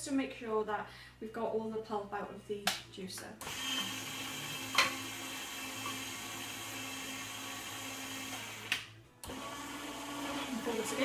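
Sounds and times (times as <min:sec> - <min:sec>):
juicer clicking: 0:03.4 - 0:11.0
juicer motor humming: 0:03.4 - 0:11.0.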